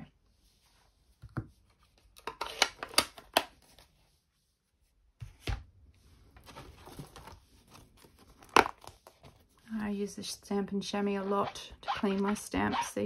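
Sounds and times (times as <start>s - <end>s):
soft rubbing: 0.1s - 2.0s, 3.7s - 5.2s.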